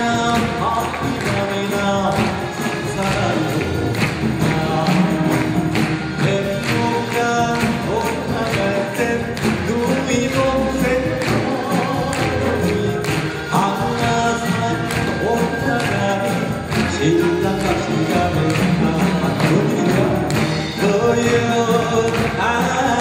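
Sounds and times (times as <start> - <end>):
man singing into a microphone: 0.0 - 23.0.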